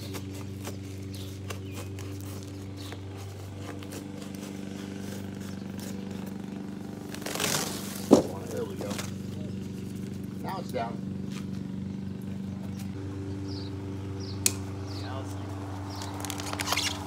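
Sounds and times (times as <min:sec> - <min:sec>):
cardboard box being cut: 0:00.0 - 0:05.9, 0:07.1 - 0:09.1
cardboard tearing rasp: 0:00.0 - 0:06.0, 0:07.1 - 0:09.1, 0:16.1 - 0:17.0
low machine hum: 0:00.0 - 0:17.0.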